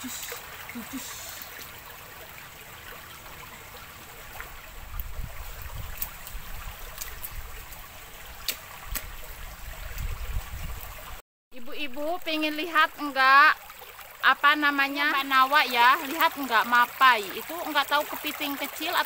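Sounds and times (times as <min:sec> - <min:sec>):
stream trickling over rocks: 0:00.0 - 0:19.0.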